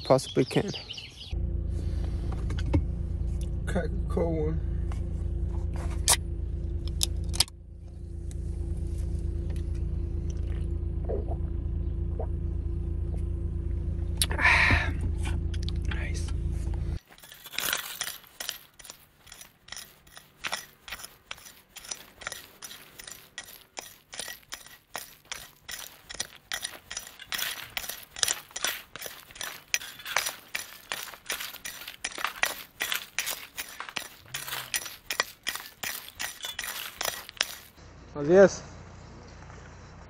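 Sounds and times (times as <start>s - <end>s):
hand tool digging through gravel: 17.0s - 37.8s
stones clinking: 17.0s - 37.8s.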